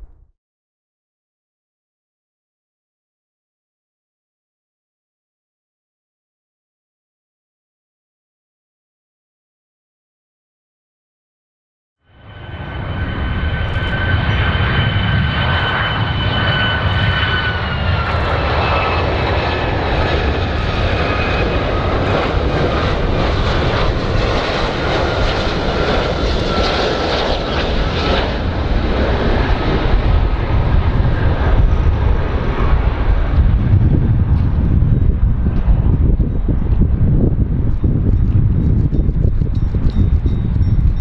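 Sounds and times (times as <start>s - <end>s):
low rumble: 0.0s - 0.3s, 12.2s - 41.0s
jet engines roaring: 12.1s - 41.0s.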